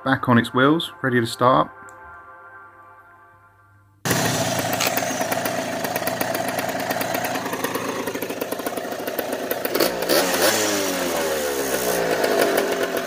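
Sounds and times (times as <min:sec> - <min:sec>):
scooter engine running: 0:04.1 - 0:13.0.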